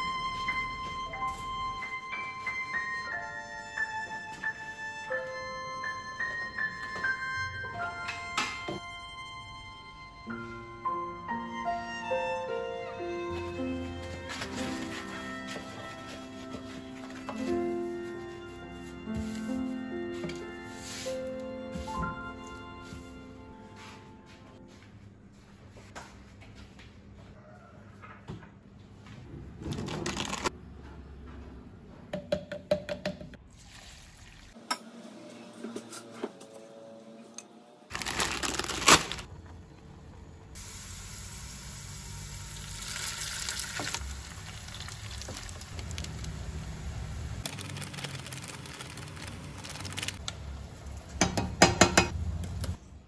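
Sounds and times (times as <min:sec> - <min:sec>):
packets rustling: 0:13.8 - 0:17.6, 0:37.9 - 0:39.3, 0:47.5 - 0:50.2
water boiling: 0:41.6 - 0:50.2
clattering in kitchen: 0:51.1 - 0:52.2.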